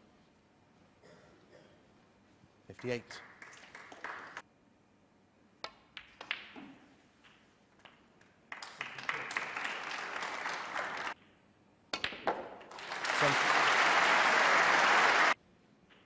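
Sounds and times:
audience applause: 0:03.4 - 0:04.4, 0:08.5 - 0:11.2, 0:12.7 - 0:15.4
snooker balls clicking: 0:05.6 - 0:08.4, 0:11.2 - 0:12.7.

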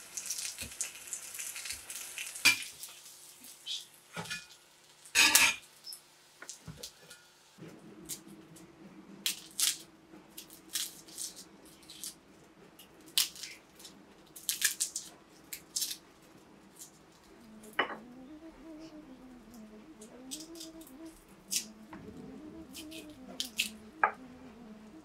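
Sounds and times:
faint wavering tone: 0:17.3 - 0:25.0.

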